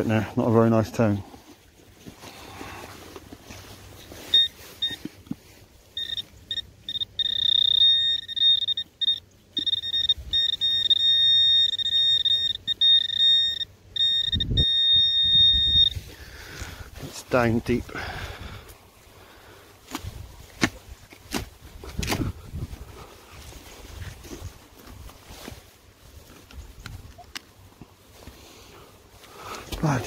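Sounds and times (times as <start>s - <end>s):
metal detector tone: 4.1s - 5.2s, 6.0s - 16.0s.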